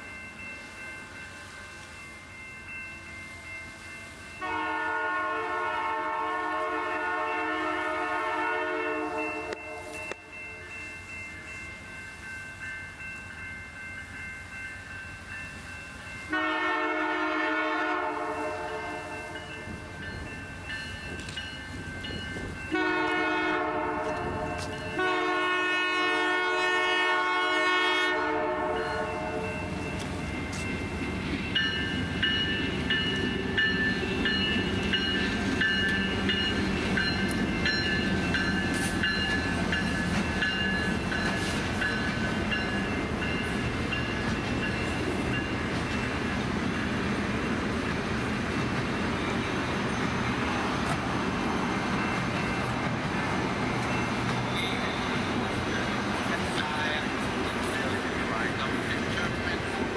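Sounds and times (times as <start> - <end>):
crossing bell ringing: 0.0 - 59.9
train cars rumbling past: 0.0 - 59.9
locomotive horn blasts: 4.4 - 10.2, 16.3 - 19.1, 22.7 - 29.5.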